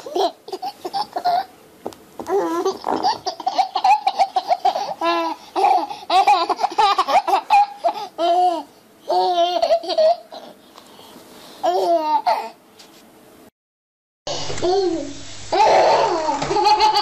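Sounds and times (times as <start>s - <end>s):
baby laughing: 0.0s - 1.5s, 2.3s - 10.6s, 11.6s - 12.6s, 15.5s - 17.0s.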